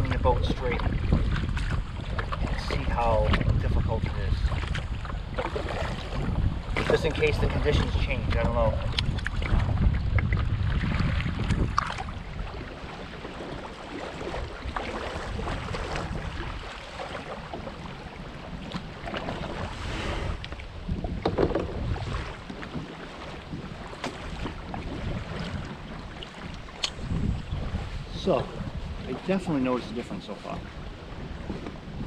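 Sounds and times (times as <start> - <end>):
kayak paddle splashing: 0.0 - 32.0
wind rumbling on microphone: 0.0 - 32.0
knocks on kayak: 21.1 - 22.0.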